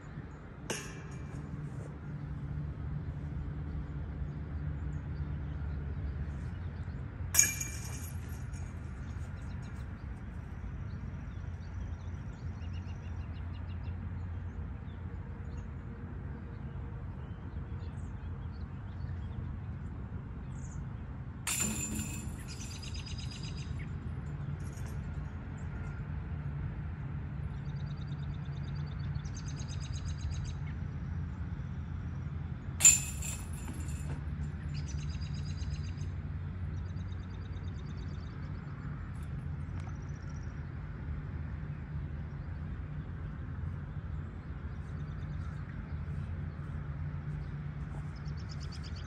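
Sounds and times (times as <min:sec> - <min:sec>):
steady low hum: 0:00.0 - 0:49.0
metal clash of disc on chains: 0:00.7 - 0:01.9, 0:07.4 - 0:09.4, 0:21.5 - 0:23.6, 0:32.8 - 0:34.3
chains jingling: 0:07.4 - 0:08.7, 0:21.5 - 0:23.1, 0:32.8 - 0:34.2.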